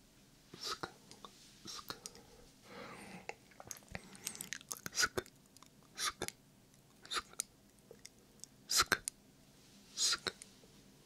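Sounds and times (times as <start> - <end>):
whispered sk mouth sounds: 0.6 - 2.2, 3.3 - 5.3, 5.9 - 6.4, 7.0 - 7.4, 8.7 - 9.1, 10.0 - 10.4
soft breathy whisper: 0.6 - 5.3, 9.9 - 10.4
lip smacks: 3.5 - 9.2
wet tongue clicks: 3.6 - 9.2.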